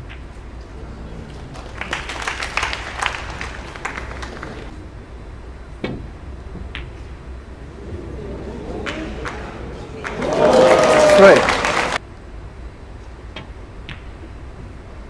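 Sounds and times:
audience clapping: 0:01.3 - 0:04.7, 0:08.8 - 0:12.0.

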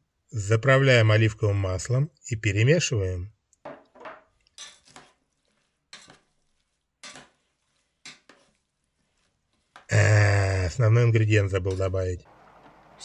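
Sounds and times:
metal spoon scraping a pot: 0:04.3 - 0:09.9.

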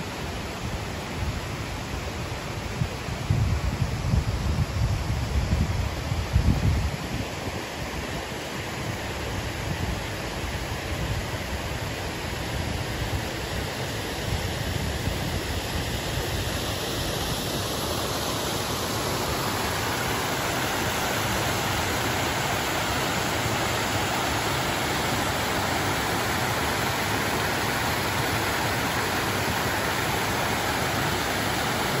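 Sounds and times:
water rushing over rocks: 0:06.8 - 0:32.0.

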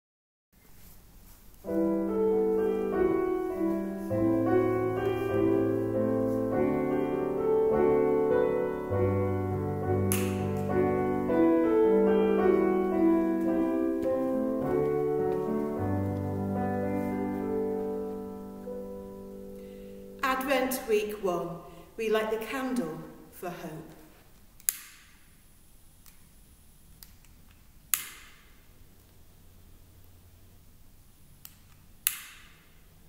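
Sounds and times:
slow piano music: 0:01.6 - 0:21.2.

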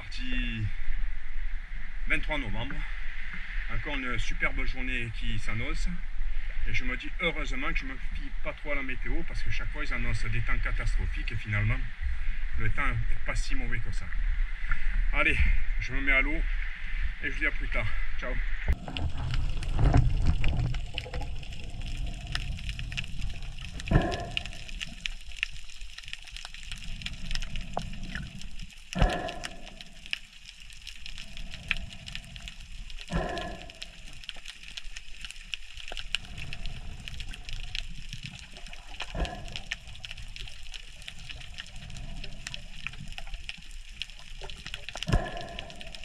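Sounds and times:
underwater crackling hiss: 0:18.7 - 0:46.0.

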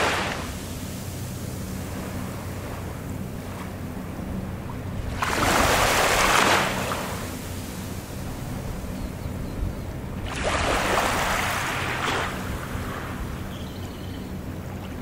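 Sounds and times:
small waves lapping on shore: 0:00.0 - 0:09.1, 0:10.0 - 0:15.0
steady low hum: 0:00.0 - 0:15.0.

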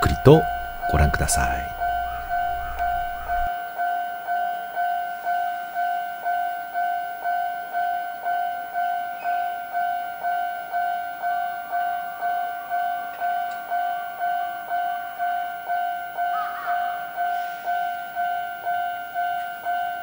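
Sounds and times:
level crossing alarm dinging: 0:00.0 - 0:03.5.

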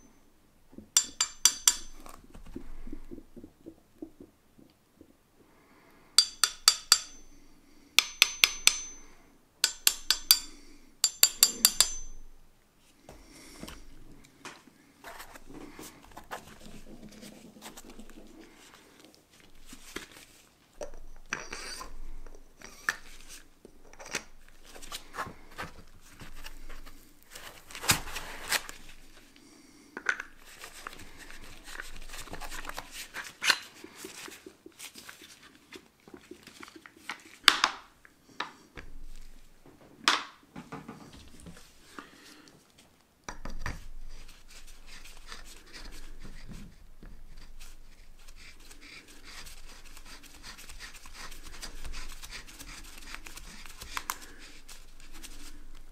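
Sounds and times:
rubbing and rustling: 0:15.0 - 0:20.8, 0:23.0 - 0:29.4, 0:30.3 - 0:37.5, 0:43.7 - 0:55.9.

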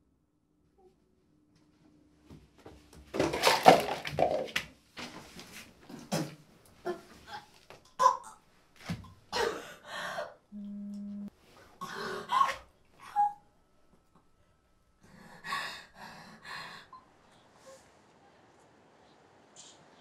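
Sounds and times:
smartphone vibrating: 0:10.6 - 0:11.3.

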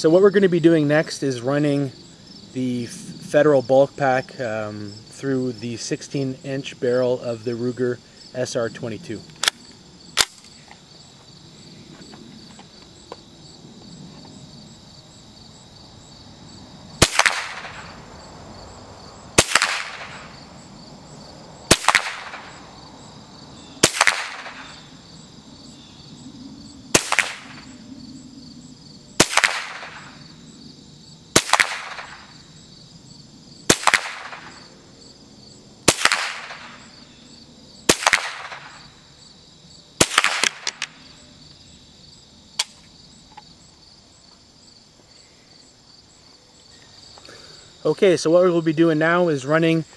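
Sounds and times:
insects chirring: 0:00.0 - 0:49.9
rifle shots with echo: 0:17.0 - 0:18.0, 0:19.4 - 0:20.3, 0:21.7 - 0:22.6, 0:23.8 - 0:24.8, 0:26.9 - 0:27.7, 0:29.2 - 0:30.2, 0:31.4 - 0:32.4, 0:33.7 - 0:34.6, 0:35.9 - 0:36.8, 0:37.9 - 0:38.8, 0:40.0 - 0:40.9.

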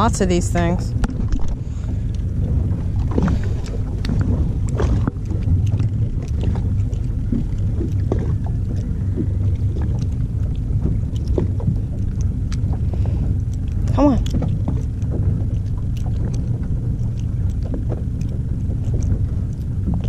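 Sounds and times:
boat engine rumble: 0:00.0 - 0:20.0.

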